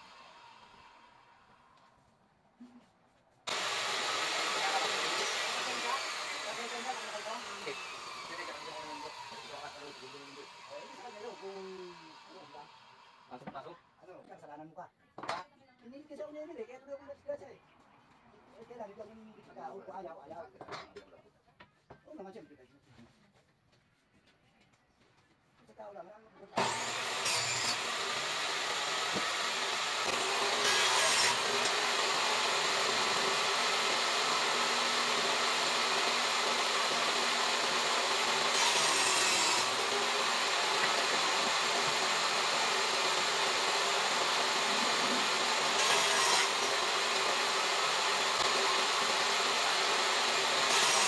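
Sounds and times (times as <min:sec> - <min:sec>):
table saw cutting wood: 0:00.0 - 0:01.2, 0:03.5 - 0:13.4, 0:26.6 - 0:51.0.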